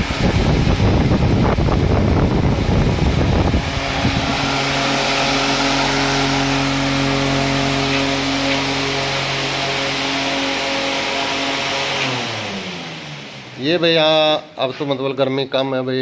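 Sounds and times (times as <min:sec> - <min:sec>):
wind buffeting microphone: 0:00.0 - 0:07.3
rush of air from fan: 0:00.0 - 0:13.6
fan motor humming: 0:00.0 - 0:15.2.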